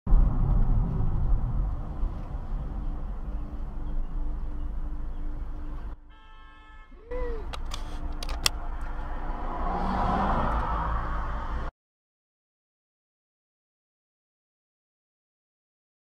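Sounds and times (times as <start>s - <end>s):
road noise inside moving car: 0.1s - 6.1s, 6.9s - 11.7s
sharp clicks: 7.4s - 9.0s.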